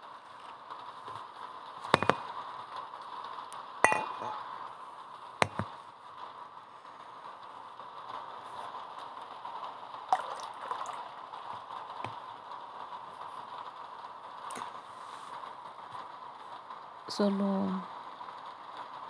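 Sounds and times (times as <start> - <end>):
faint hiss: 0.0 - 19.0.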